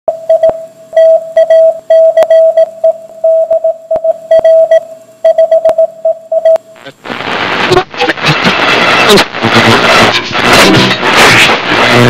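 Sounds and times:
morse code beeps: 0.3s - 6.6s
sharp radio crackles: 6.6s - 12.0s.

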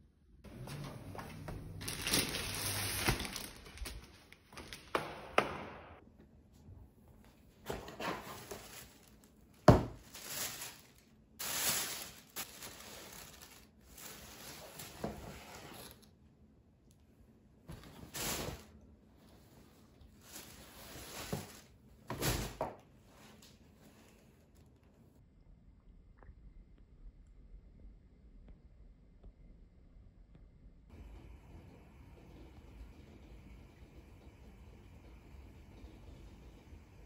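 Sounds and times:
plastic and tissue paper crinkling: 0.5s - 4.9s, 7.7s - 16.0s, 17.8s - 18.7s, 20.0s - 24.6s.

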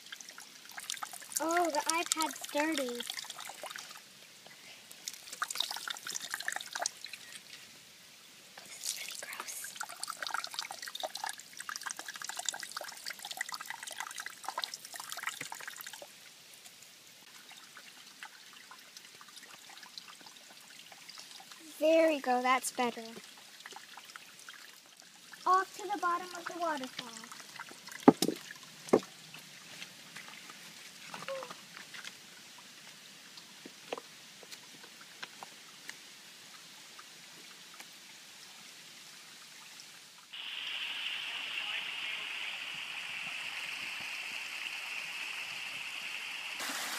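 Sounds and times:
waterfall splashing over rocks: 0.0s - 7.4s, 8.6s - 16.0s, 25.2s - 29.2s, 40.2s - 46.9s
water trickling: 0.0s - 40.5s
low hiss: 0.0s - 46.9s
water dripping on plastic case: 0.8s - 3.2s.

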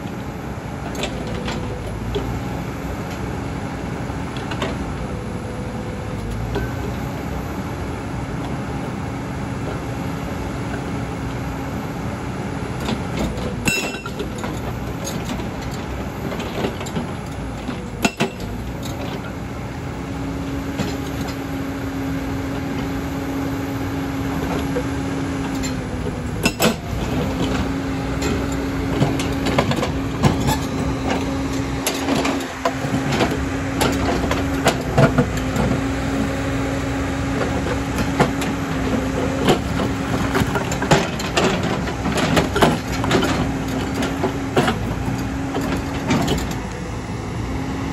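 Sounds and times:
excavator engine drone: 0.0s - 47.9s
hydraulic breaker hammering stone: 18.0s - 18.5s.

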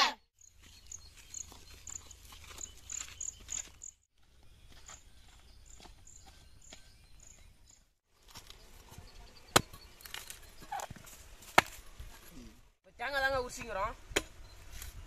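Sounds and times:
faint footsteps on ground: 0.4s - 9.2s
machete chopping coconut husk: 9.5s - 12.2s, 14.1s - 14.4s.

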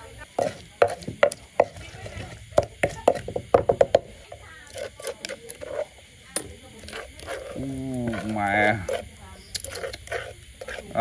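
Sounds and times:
wooden pestle pounding in mortar: 0.3s - 5.8s.

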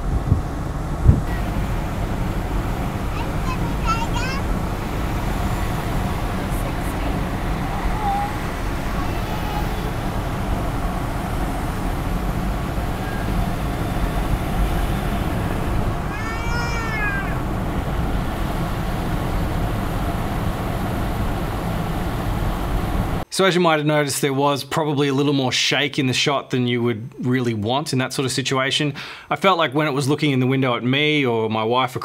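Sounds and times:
car road and engine noise: 0.0s - 23.3s
high-pitched child call: 3.2s - 4.6s, 6.9s - 10.2s, 12.9s - 13.4s, 16.0s - 17.5s.

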